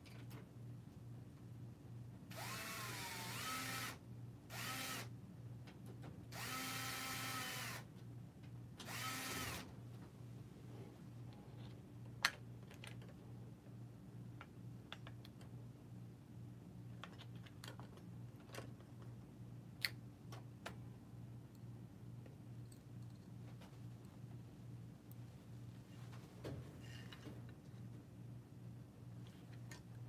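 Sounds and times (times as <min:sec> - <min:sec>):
electric screwdriver whining: 0:02.3 - 0:05.1, 0:06.4 - 0:07.8, 0:08.8 - 0:09.7.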